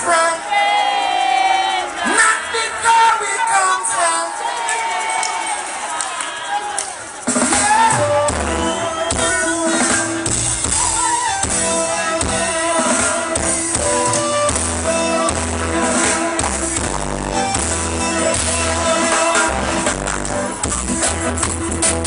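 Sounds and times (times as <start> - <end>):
band music: 0.0 - 22.0
drum kit: 7.1 - 22.0
moving bass line: 7.8 - 22.0.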